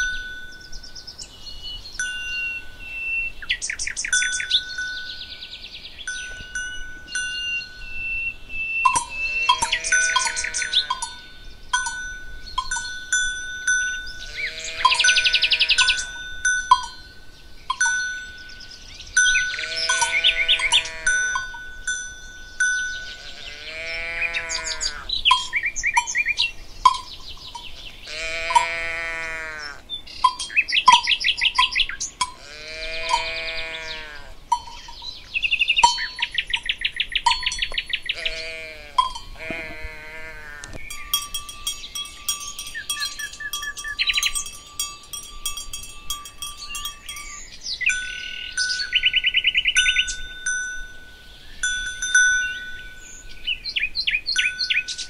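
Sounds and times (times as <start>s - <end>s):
songbirds trilling and chirping: 0.0s - 55.0s
ringing bell tones: 6.1s - 8.0s, 8.9s - 23.2s, 40.8s - 49.0s, 49.8s - 53.1s
livestock calling: 7.4s - 11.2s, 13.8s - 16.2s, 19.2s - 21.6s, 22.8s - 44.6s.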